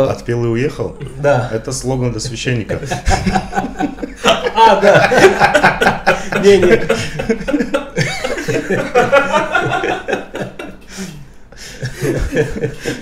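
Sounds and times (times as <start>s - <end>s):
men laughing: 2.6s - 13.0s.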